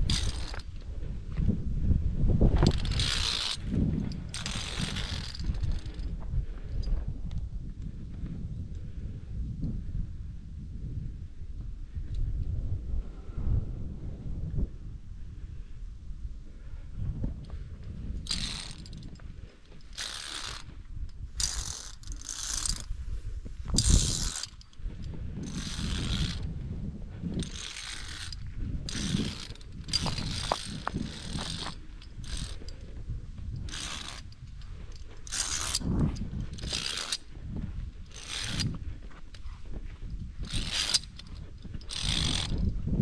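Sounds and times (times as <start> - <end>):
carabiners scraping and clinking on cable: 0.0 - 1.4, 2.4 - 7.1, 17.4 - 43.0.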